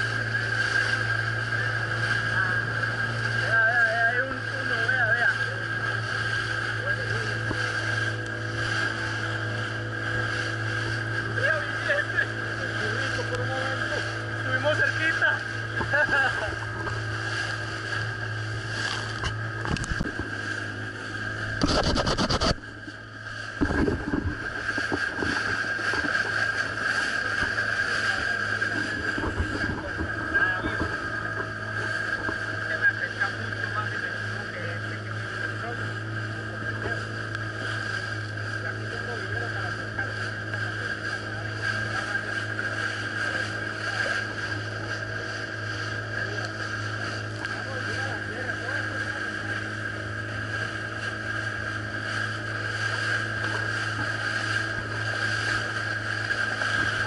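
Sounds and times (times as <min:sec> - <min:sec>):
boat motor running: 0:00.0 - 0:57.0
water rushing past hull: 0:00.0 - 0:57.0
wind on microphone: 0:15.5 - 0:34.4.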